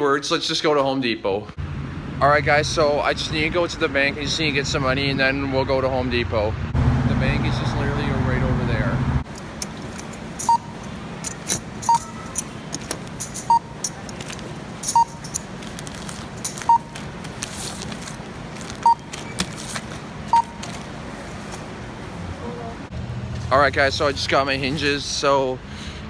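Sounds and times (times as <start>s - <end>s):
barcode scanner beeping: 10.4s - 12.5s, 13.3s - 14.0s, 14.8s - 15.4s, 16.6s - 17.0s, 18.8s - 19.5s, 20.3s - 20.8s.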